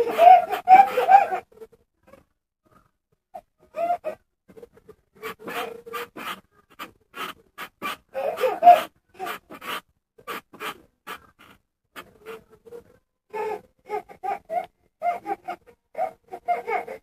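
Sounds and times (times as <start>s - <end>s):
toddler giggling: 0.0s - 1.4s, 8.2s - 9.4s, 13.4s - 17.0s.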